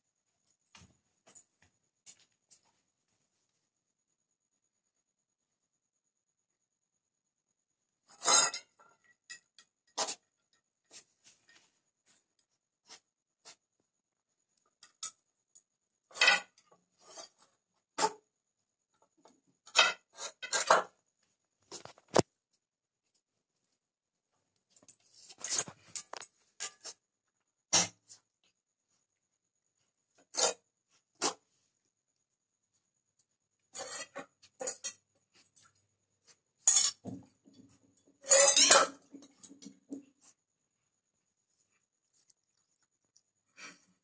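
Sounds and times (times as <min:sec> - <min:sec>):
ball clinking in metal bowl: 0:38.3 - 0:39.6.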